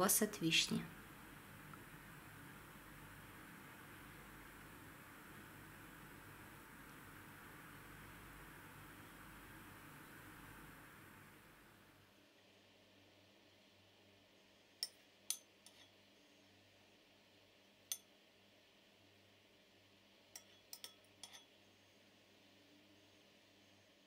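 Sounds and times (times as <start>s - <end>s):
metal spoon clinking on glass: 20.4s - 21.5s.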